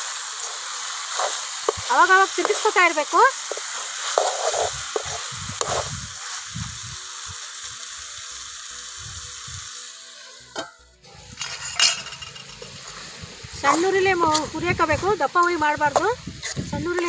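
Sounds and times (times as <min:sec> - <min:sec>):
chicken sizzling in oil: 0:00.0 - 0:17.0
steel lid clanking: 0:10.6 - 0:12.8.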